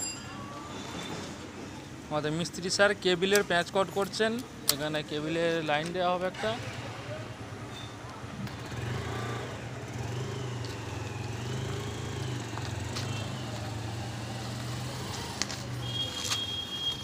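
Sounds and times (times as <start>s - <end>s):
vehicle engine humming: 4.5s - 16.8s.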